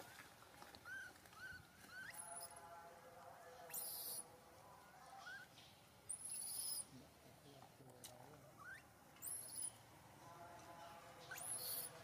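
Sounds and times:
macaque held call: 0.8s - 2.6s, 3.7s - 4.3s, 5.1s - 6.9s, 8.5s - 9.8s, 11.2s - 12.0s
newborn macaque squeaking: 0.8s - 2.6s, 3.7s - 4.2s, 5.2s - 5.5s, 6.1s - 6.9s, 8.6s - 9.8s, 11.2s - 12.0s.

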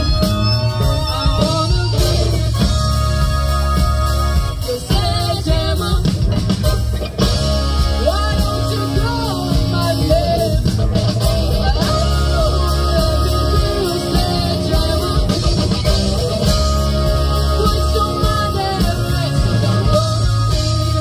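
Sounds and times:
live rock band playing: 0.0s - 21.0s
woman singing: 4.6s - 6.4s, 8.0s - 10.6s, 11.5s - 15.7s, 16.5s - 21.0s.

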